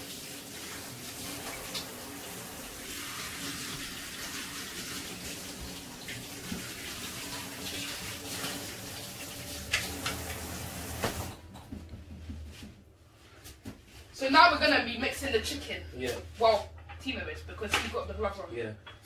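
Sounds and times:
tap water splashing into sink: 0.0s - 11.4s.

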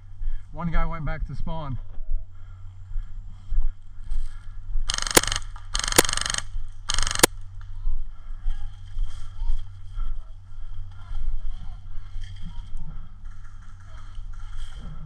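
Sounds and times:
airsoft rifle full-auto bursts: 4.9s - 7.3s
mechanical rattle of gun cycling: 4.9s - 7.3s.

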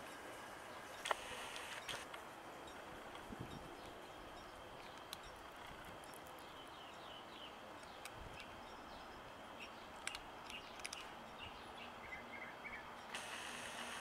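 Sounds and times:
sharp little clicks: 1.0s - 2.2s, 10.0s - 11.1s, 13.1s - 14.0s.

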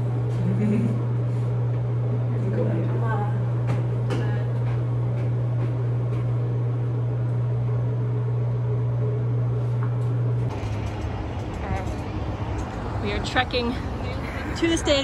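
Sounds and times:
low electrical hum: 0.0s - 15.0s
outdoor street noise: 10.4s - 15.0s.

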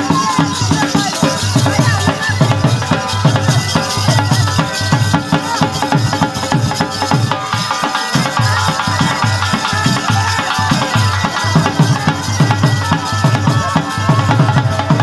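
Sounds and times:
bagpipe melody with drone: 7.4s - 15.0s.

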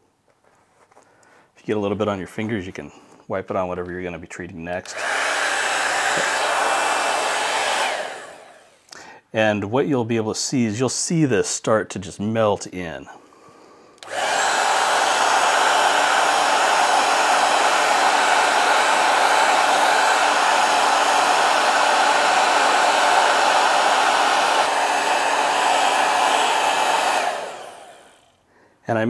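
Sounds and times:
hair dryer blowing: 4.8s - 8.9s, 14.0s - 28.3s.

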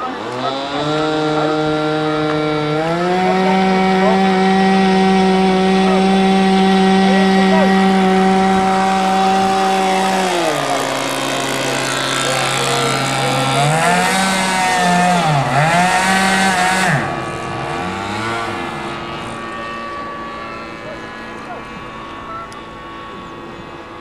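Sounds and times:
model plane engines buzzing: 0.0s - 24.0s.

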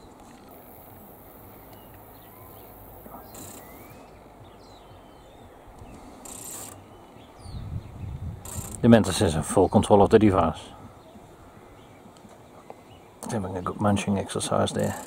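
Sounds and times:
faint bird chirps: 0.0s - 8.8s
high steady hiss: 0.0s - 15.0s
low outdoor background noise: 0.0s - 15.0s.

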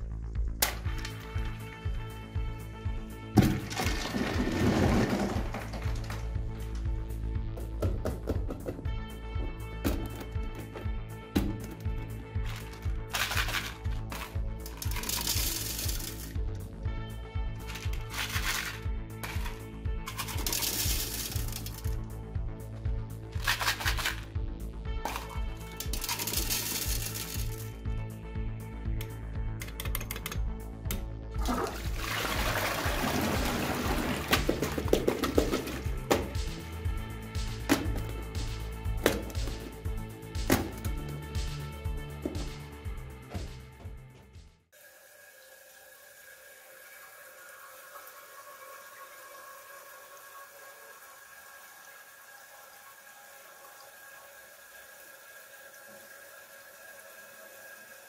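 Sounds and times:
background music: 0.0s - 58.0s
toilet flushing: 3.3s - 6.4s, 31.4s - 37.0s, 44.8s - 58.0s.

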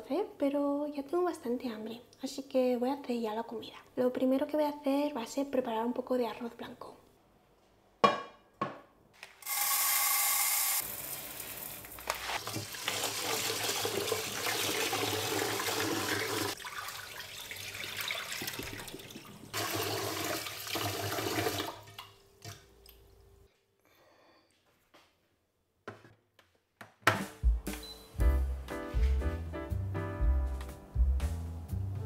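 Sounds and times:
rinse water poured into sink: 9.4s - 22.1s
tap water splashing into pot: 12.4s - 22.6s.

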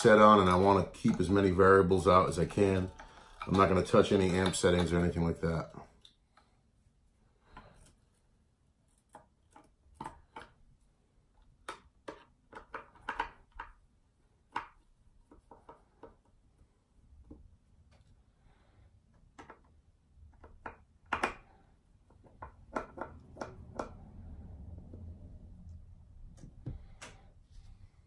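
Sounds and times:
hand tools clicking and knocking: 0.0s - 5.4s.

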